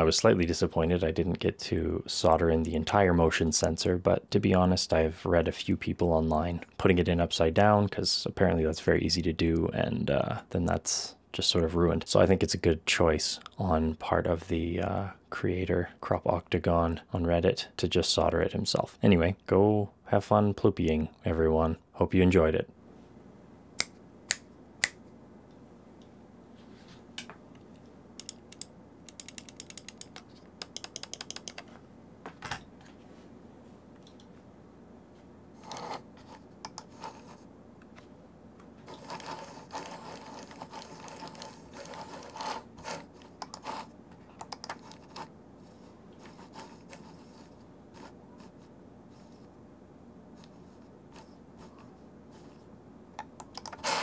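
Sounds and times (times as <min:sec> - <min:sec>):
scroll wheel ratcheting clicks: 0:28.2 - 0:31.6
typing on mechanical keyboard: 0:29.1 - 0:31.6.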